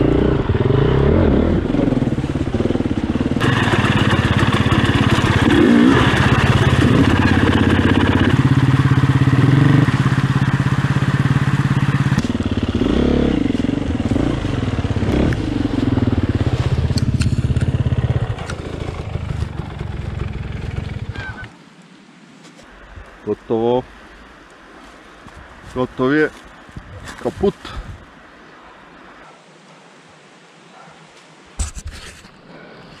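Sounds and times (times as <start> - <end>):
motorcycle engine revving: 0.0 - 21.5
motorcycle clatter: 3.4 - 12.7.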